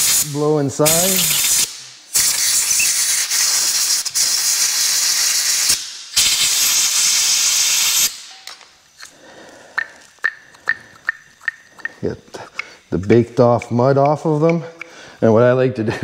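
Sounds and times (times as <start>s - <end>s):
compressed air blow gun hissing: 0.0s - 10.1s.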